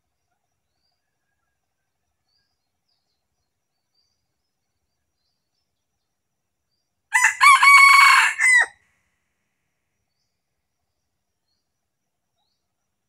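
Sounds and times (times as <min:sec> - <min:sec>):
rooster crowing: 0:07.1 - 0:08.8.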